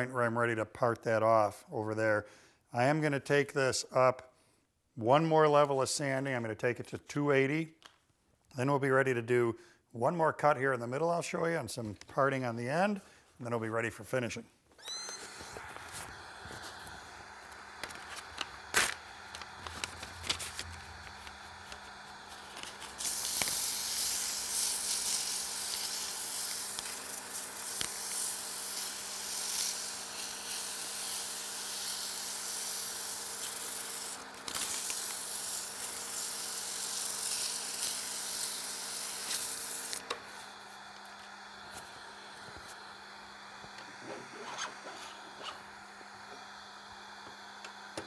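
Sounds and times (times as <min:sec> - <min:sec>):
lathe motor hum: 0:15.2 - 0:24.9, 0:26.2 - 0:48.0
sandpaper hissing on spinning wood: 0:15.2 - 0:40.6.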